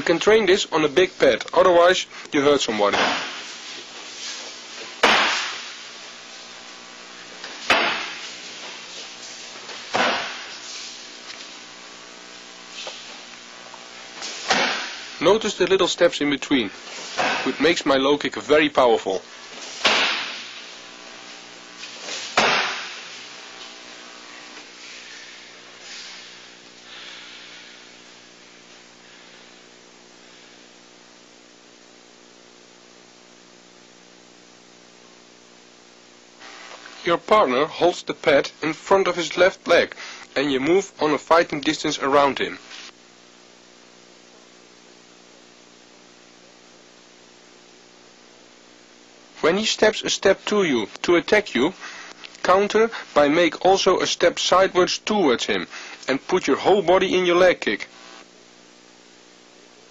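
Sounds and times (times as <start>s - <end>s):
low electrical hum: 0.0s - 59.9s
steady hiss: 0.0s - 59.9s
kicks slapping kick shield: 5.0s - 5.5s, 19.8s - 20.4s, 22.4s - 23.0s.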